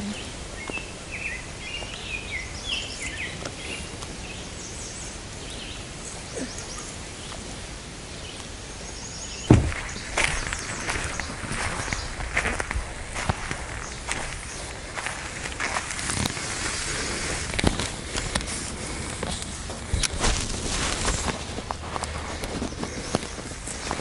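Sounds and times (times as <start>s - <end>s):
outdoor background hiss: 0.0s - 24.0s
songbirds chirping: 0.0s - 24.0s
camera handling knocks: 9.5s - 9.8s
camera handling thump: 9.5s - 9.8s.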